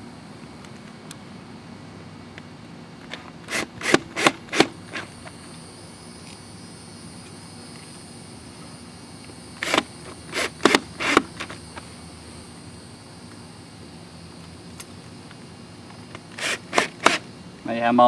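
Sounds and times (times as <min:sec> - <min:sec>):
cordless drill driving screws: 0:03.5 - 0:05.1, 0:09.6 - 0:11.5, 0:16.3 - 0:17.2.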